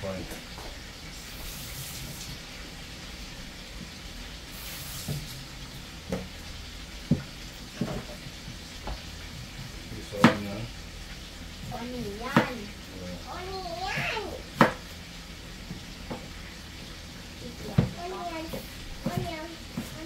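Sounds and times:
frying sizzle: 0.0s - 20.0s
tap water splashing into sink: 6.0s - 6.4s, 7.0s - 10.6s, 11.6s - 12.7s, 14.0s - 14.9s
knife knocking on cutting board: 7.1s - 9.0s, 10.2s - 10.4s, 14.6s - 14.8s, 17.8s - 20.0s.

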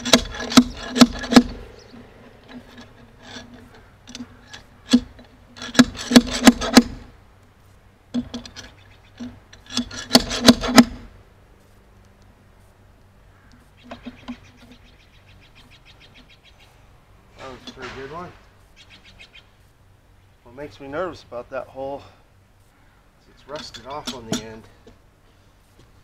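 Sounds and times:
metal scraping on wood: 0.0s - 11.8s, 13.4s - 15.0s, 17.3s - 18.8s, 22.6s - 26.0s
metal clanks of hammer blows: 17.4s - 18.4s, 23.4s - 24.9s.

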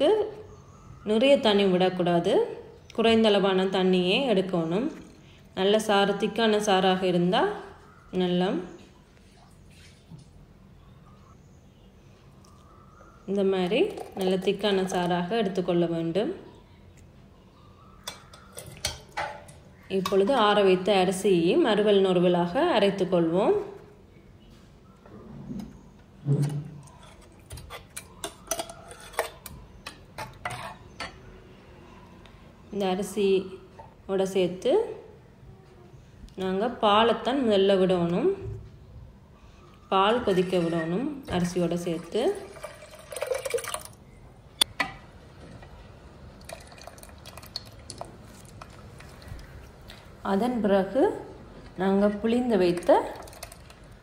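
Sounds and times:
porridge dripping and splashing: 42.4s - 44.0s, 46.4s - 50.0s, 52.7s - 54.0s.

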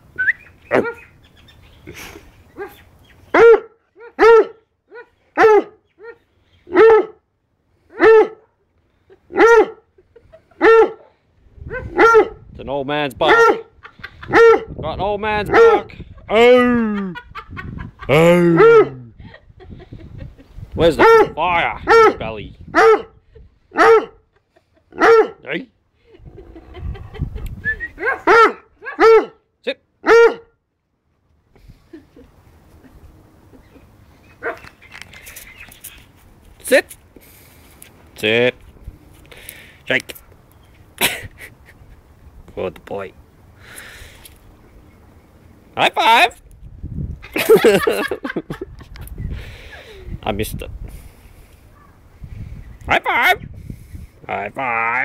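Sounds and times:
dog barking: 3.4s - 7.2s, 8.0s - 8.5s, 9.3s - 9.8s, 10.6s - 11.1s, 11.7s - 12.4s, 13.3s - 13.7s, 14.3s - 14.7s, 15.5s - 15.8s, 21.0s - 22.2s, 22.8s - 23.2s, 23.8s - 24.2s, 25.0s - 25.4s, 28.0s - 29.4s, 30.0s - 30.5s.

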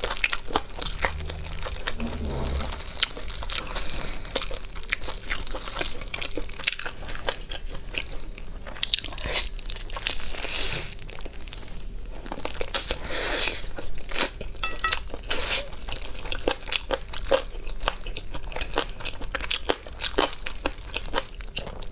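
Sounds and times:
close-miked chewing and biting: 16.2s - 21.9s.

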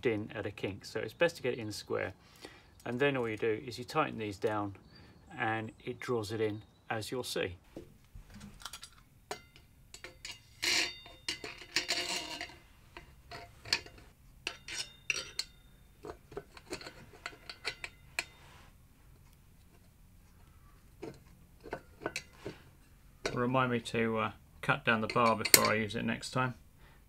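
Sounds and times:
metal scraping: 8.2s - 24.1s, 24.7s - 26.3s
steel parts clinking: 8.4s - 18.6s, 21.0s - 24.0s, 24.8s - 26.3s
washers knocking: 24.9s - 26.0s.

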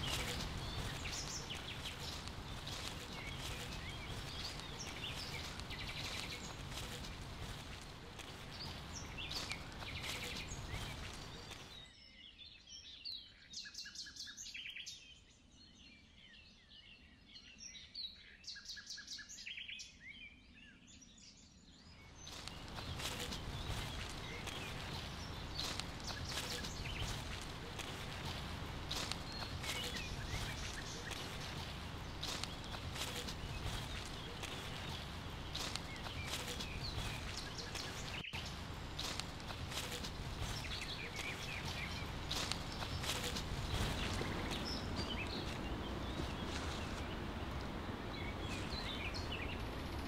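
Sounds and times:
footsteps on leaves: 0.0s - 11.8s, 22.2s - 49.4s
small birds chirping: 0.0s - 50.0s.

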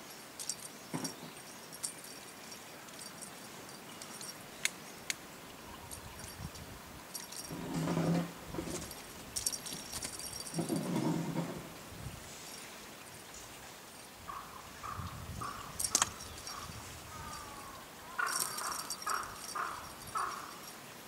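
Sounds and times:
cat toy jingling and clicking: 0.0s - 4.5s, 5.9s - 11.2s, 15.8s - 17.6s, 18.2s - 20.8s.

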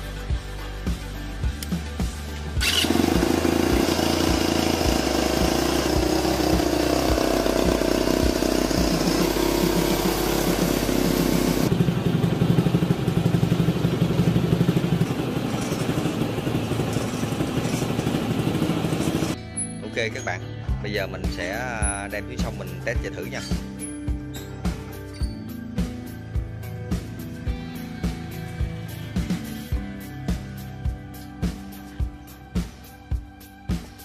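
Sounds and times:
small engine starting and running: 2.6s - 19.4s.

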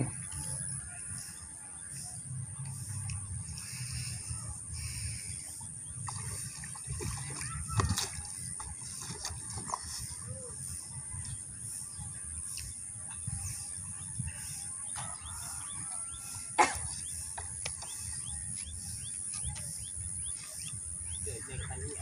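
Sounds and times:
bird chirping: 9.8s - 22.0s.

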